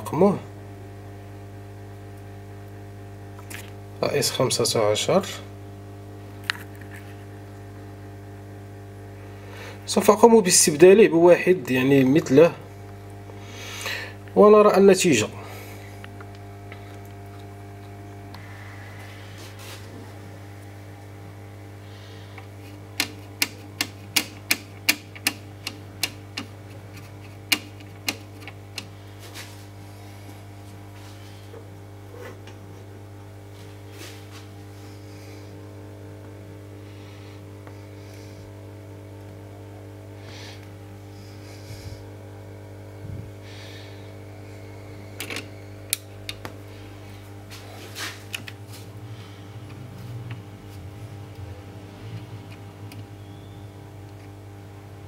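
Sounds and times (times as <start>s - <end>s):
electrical hum: 0.0s - 55.0s
sharp clicks: 23.0s - 26.5s.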